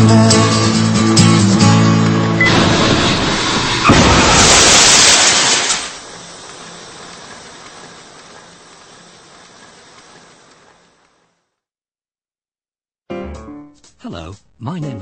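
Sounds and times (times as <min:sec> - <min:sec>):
loud rush of noise: 0:02.4 - 0:09.4.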